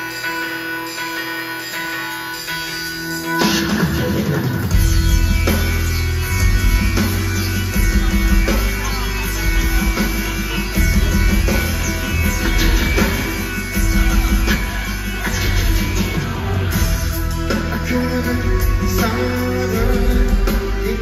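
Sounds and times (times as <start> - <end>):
rock band music: 0.0 - 21.0
heavy bass: 3.4 - 21.0.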